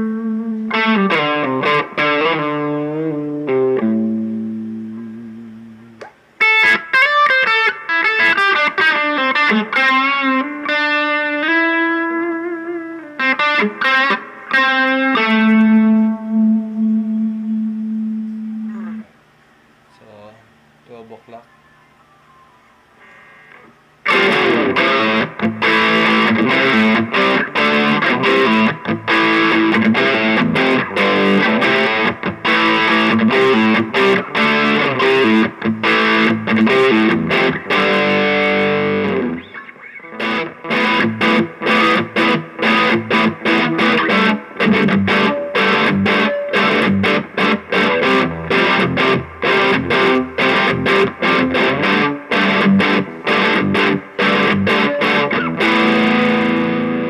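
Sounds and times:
distorted electric guitar: 0.0 - 19.2, 23.0 - 57.0.

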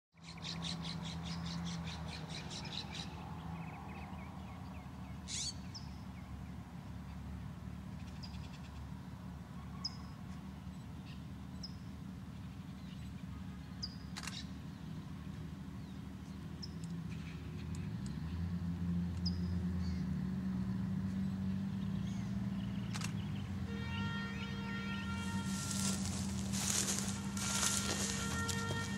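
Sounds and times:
rail motor car engine drone: 6.1 - 28.9.

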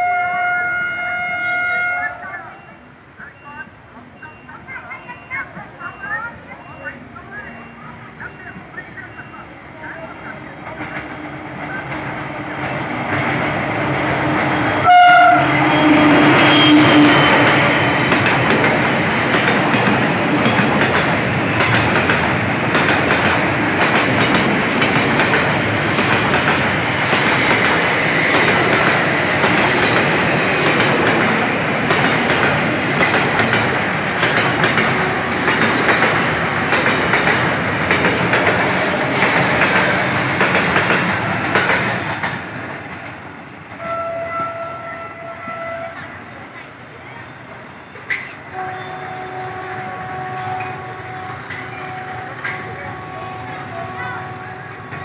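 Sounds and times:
train horn blast: 0.0 - 2.2, 14.2 - 18.1, 34.7 - 35.8, 43.8 - 46.2, 48.5 - 55.0
train wheels clattering over rails: 10.6 - 44.6.

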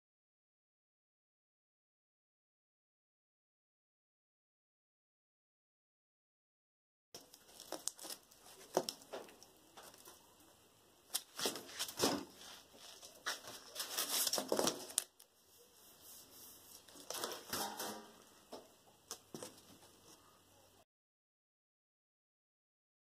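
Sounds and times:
sheet metal taps and clatters: 17.1 - 18.2.

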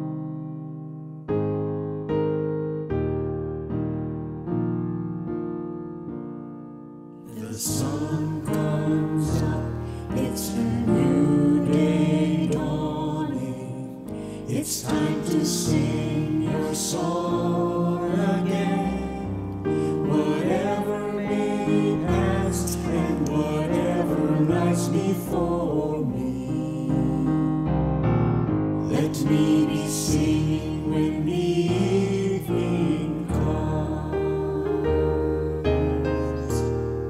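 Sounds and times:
piano: 0.0 - 37.0
group singing a worship song: 7.3 - 27.6, 28.8 - 36.7.

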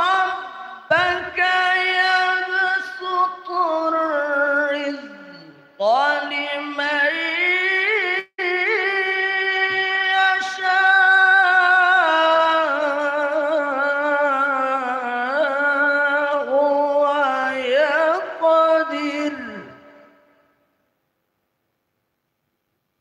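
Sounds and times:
man chanting melodically: 0.0 - 20.3.

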